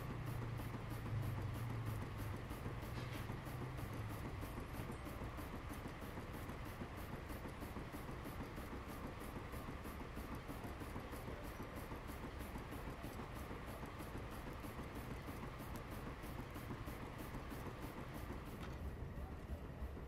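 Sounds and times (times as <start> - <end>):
low mechanical rumble: 0.0 - 20.0
steam engine exhaust chuffing: 0.0 - 20.0.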